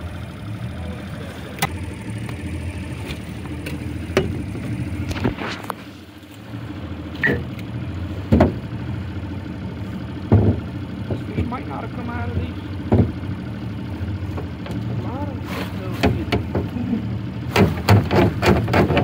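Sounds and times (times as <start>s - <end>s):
outboard motor idling: 0.0s - 19.0s
knocks and clatter on boat: 3.1s - 5.4s, 8.2s - 8.8s, 10.2s - 13.4s, 14.3s - 14.9s, 15.8s - 19.0s.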